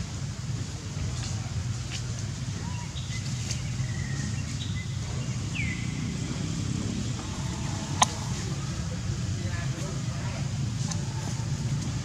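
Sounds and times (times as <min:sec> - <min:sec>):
steady low rumble: 0:03.6 - 0:12.0.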